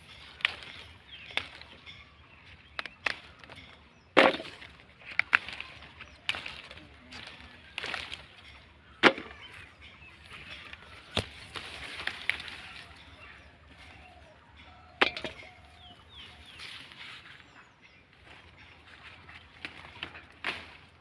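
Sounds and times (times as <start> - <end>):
leaves rustling against phone: 11.0 - 13.0.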